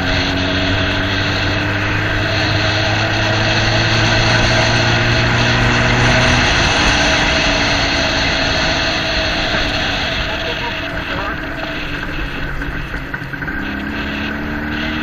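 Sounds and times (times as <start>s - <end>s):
motorcycle engine humming: 0.0s - 15.0s
steady rushing noise: 0.0s - 15.0s.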